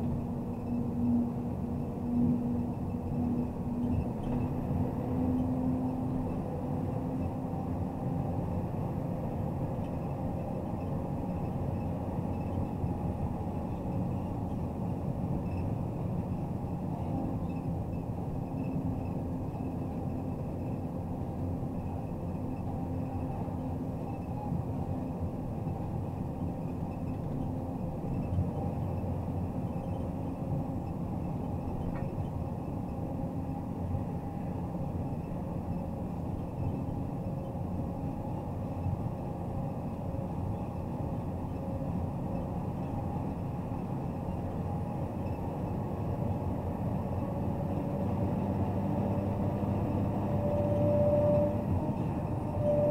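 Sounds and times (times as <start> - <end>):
diesel engine drone: 0.0 - 52.9
road noise: 0.0 - 52.9.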